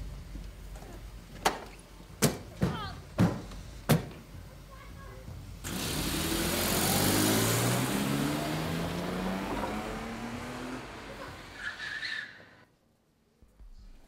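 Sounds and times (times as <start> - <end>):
tyre and road noise: 5.4 - 12.6
car engine accelerating: 5.6 - 12.6.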